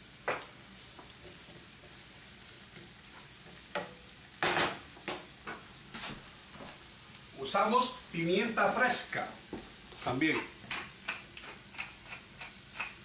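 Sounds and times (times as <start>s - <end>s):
vegetables sizzling in a pan: 0.0s - 13.0s
wooden spoon scraping a pan: 0.3s - 3.9s, 4.6s - 6.9s.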